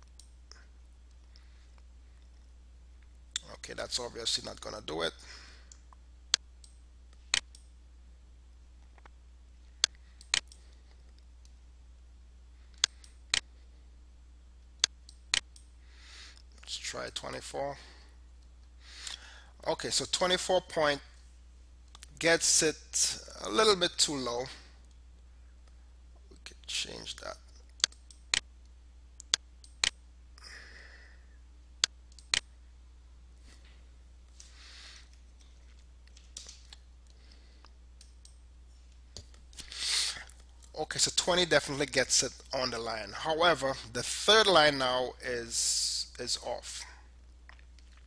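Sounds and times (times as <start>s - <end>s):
faint low hum: 0.0s - 48.0s
computer mouse clicking: 27.7s - 28.4s, 31.8s - 32.5s.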